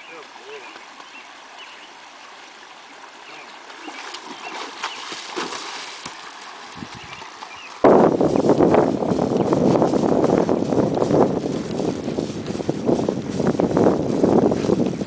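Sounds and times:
ditch water running: 0:00.0 - 0:15.0
horse hooves splashing in water: 0:00.0 - 0:15.0.

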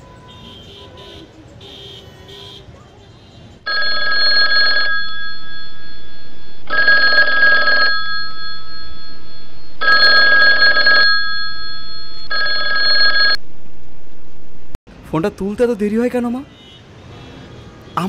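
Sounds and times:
telephone ringing: 0:03.7 - 0:13.4.

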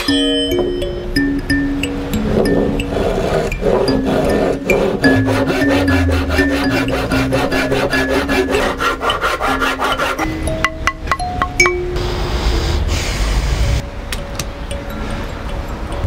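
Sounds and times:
hand saw rasping through wood: 0:02.1 - 0:10.4.

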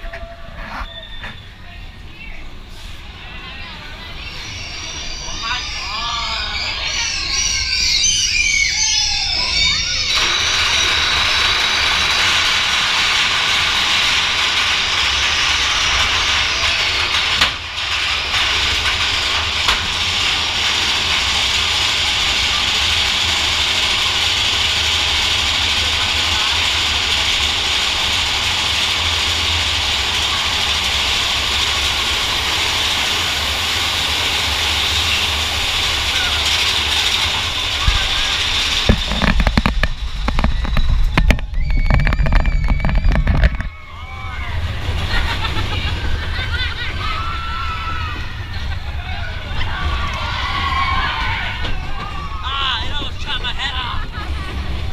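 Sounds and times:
voices: 0:00.0 - 0:12.2, 0:43.8 - 0:54.9
roller coaster wheels rumbling: 0:00.0 - 0:54.9.

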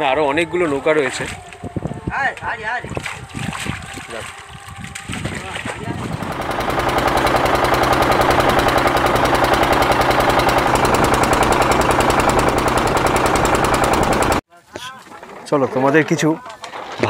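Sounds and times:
boat engine knocking: 0:05.1 - 0:14.4.

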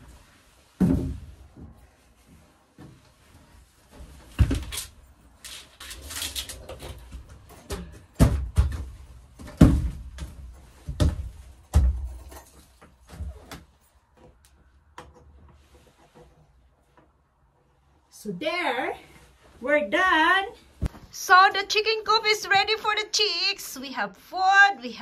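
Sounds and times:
heavy thumps and knocks: 0:07.7 - 0:12.2.

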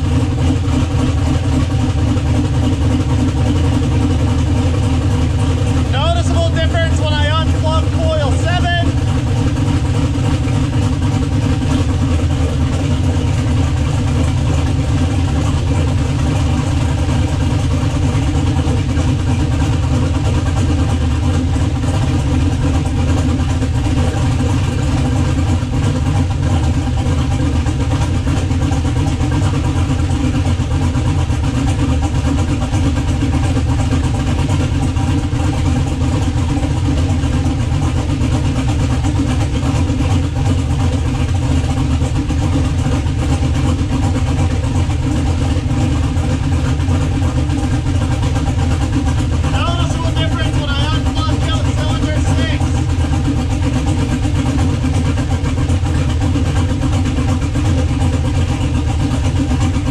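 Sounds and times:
car engine idling: 0:00.0 - 0:59.9.

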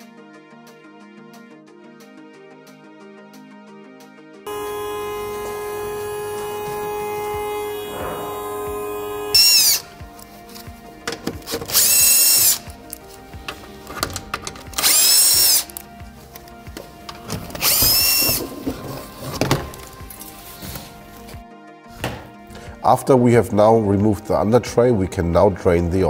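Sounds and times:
cordless drill whining: 0:04.5 - 0:10.2, 0:11.6 - 0:12.8, 0:14.7 - 0:15.8, 0:17.1 - 0:20.2.

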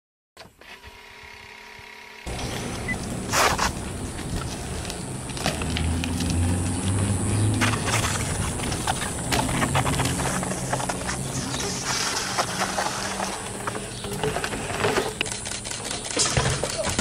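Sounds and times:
bike tyres rolling on concrete: 0:02.3 - 0:17.0
clicks and knocks from bike: 0:07.4 - 0:17.0.

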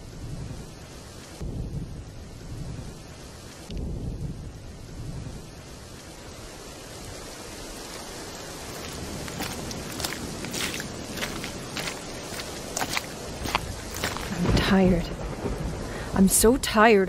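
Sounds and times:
steady rain falling: 0:00.0 - 0:17.0
thunder rumbling: 0:01.4 - 0:17.0
sharp footsteps: 0:07.8 - 0:14.8.

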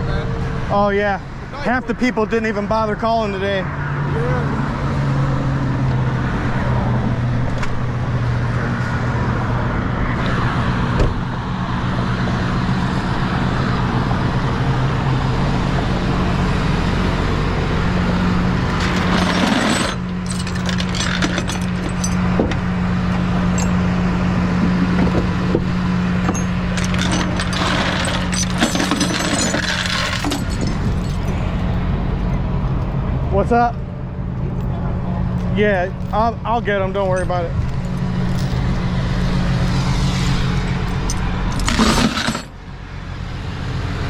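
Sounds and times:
road noise: 0:00.0 - 0:44.0
metallic clinks and rattles: 0:18.7 - 0:23.8, 0:26.2 - 0:31.5, 0:37.1 - 0:39.0, 0:40.8 - 0:42.5.

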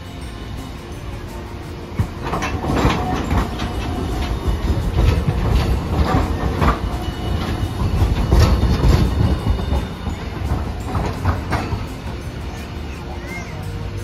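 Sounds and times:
tram rumbling: 0:00.0 - 0:14.0
wheels clacking over rail joints: 0:00.0 - 0:14.0.

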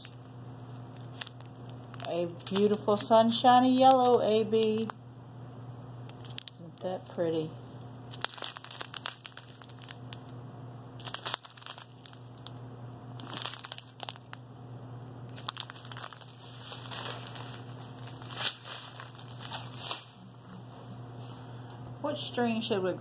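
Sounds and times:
small plastic bags crinkling: 0:00.0 - 0:02.9, 0:03.8 - 0:04.9, 0:06.1 - 0:07.1, 0:08.1 - 0:10.4, 0:11.0 - 0:12.6, 0:13.2 - 0:14.4, 0:15.3 - 0:20.7.

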